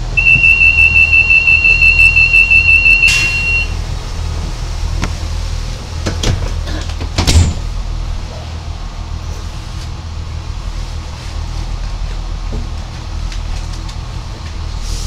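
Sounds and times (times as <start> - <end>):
high door warning beeping: 0.0 - 3.8
diesel engine hum: 0.0 - 15.0
train doors shutting knock: 2.8 - 3.7.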